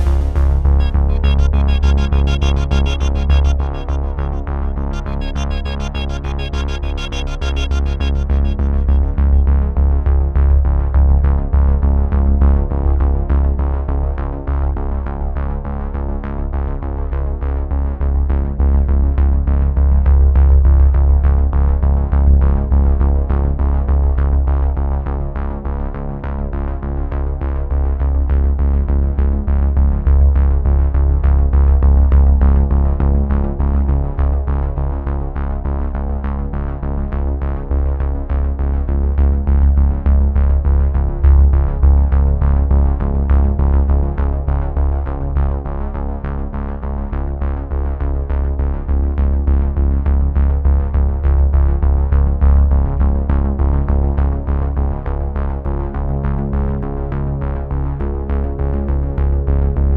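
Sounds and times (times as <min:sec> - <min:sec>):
electronic music with heavy bass: 0:00.0 - 0:09.9.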